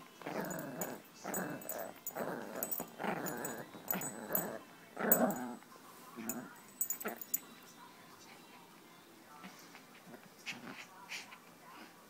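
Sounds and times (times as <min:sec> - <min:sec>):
small dog growling: 0:00.2 - 0:05.6, 0:06.3 - 0:07.4.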